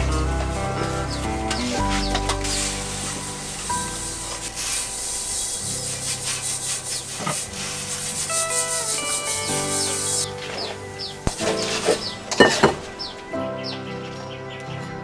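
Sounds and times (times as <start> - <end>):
soft background music: 0.0 - 15.0
scraping strokes: 1.2 - 12.9.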